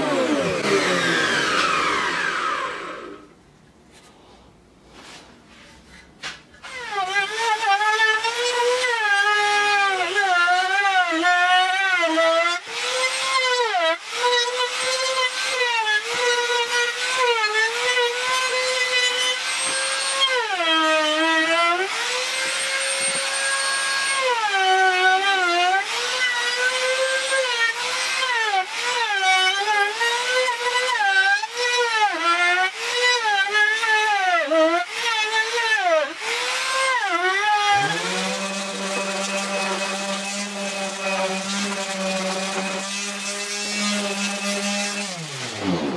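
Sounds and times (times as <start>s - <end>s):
router bit cutting wood: 0.0s - 3.4s, 6.6s - 45.9s
trim router whining: 0.0s - 3.4s, 12.6s - 31.7s, 34.9s - 45.9s.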